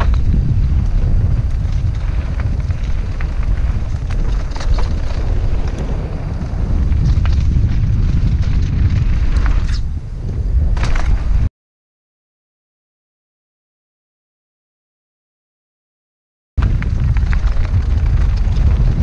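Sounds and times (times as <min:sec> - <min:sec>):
bike clicks and knocks: 0:00.0 - 0:09.8, 0:10.7 - 0:11.4
tyres rumbling on dirt and rock: 0:00.0 - 0:11.5, 0:16.6 - 0:19.0
wind buffeting microphone: 0:00.0 - 0:11.5, 0:16.6 - 0:19.0.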